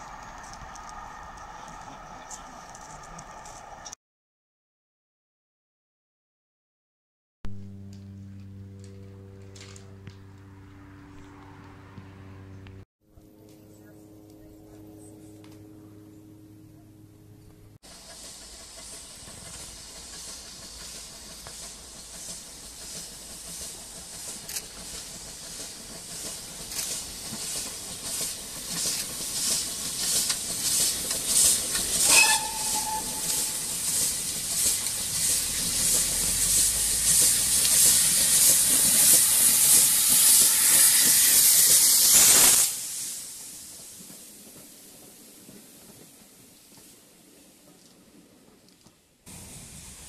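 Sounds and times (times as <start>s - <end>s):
steam locomotive exhaust beats: 0.0s - 4.0s, 13.6s - 50.0s
steam whistle: 31.7s - 34.3s, 35.1s - 42.8s.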